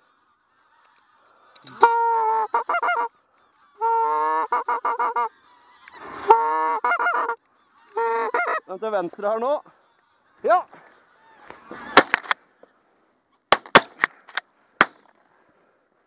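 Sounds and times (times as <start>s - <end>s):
goose call honking: 0.0s - 12.7s.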